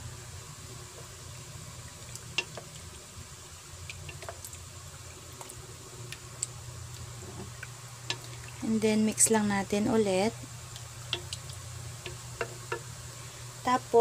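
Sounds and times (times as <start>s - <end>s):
low steady hum: 0.0s - 14.0s
wooden spoon stirring wet marinade: 3.9s - 4.6s, 5.2s - 9.8s.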